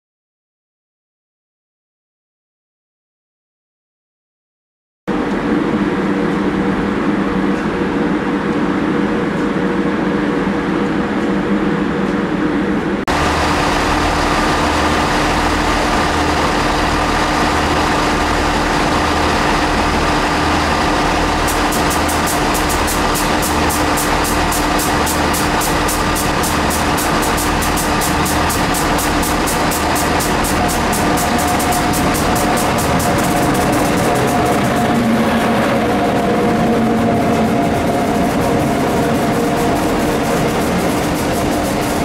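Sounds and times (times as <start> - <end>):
locomotive engine idling: 13.1 - 42.0
slow low throb: 13.1 - 42.0
rapid high ticking: 13.2 - 35.2.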